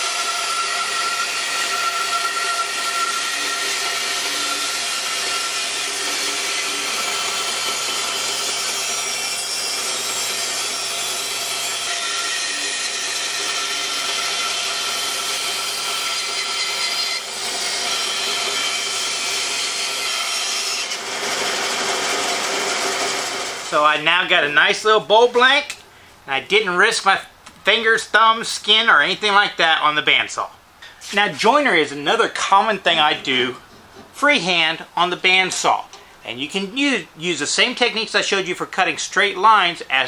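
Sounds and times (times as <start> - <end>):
band saw cutting wood: 0.0 - 25.5.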